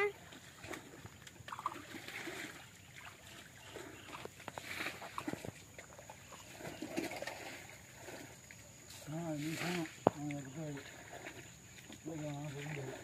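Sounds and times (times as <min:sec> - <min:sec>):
splashing in muddy water: 0:00.0 - 0:13.0.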